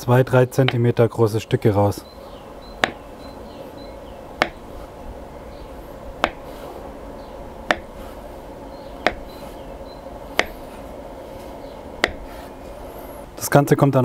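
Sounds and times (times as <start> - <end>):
knife knocking on bamboo board: 2.8 - 3.0, 4.4 - 4.6, 6.2 - 6.4, 7.7 - 7.9, 9.0 - 9.3, 10.4 - 10.6, 12.0 - 12.3
knife slicing dough: 4.4 - 4.9, 6.2 - 6.9, 7.7 - 8.3, 9.0 - 9.7, 10.3 - 12.8.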